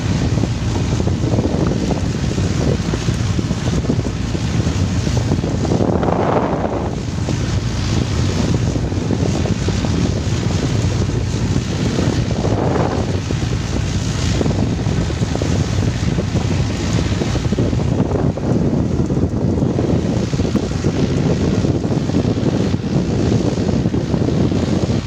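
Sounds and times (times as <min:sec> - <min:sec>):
boat engine running: 0:00.0 - 0:25.0
rushing water: 0:00.0 - 0:25.0
wind buffeting microphone: 0:00.0 - 0:25.0.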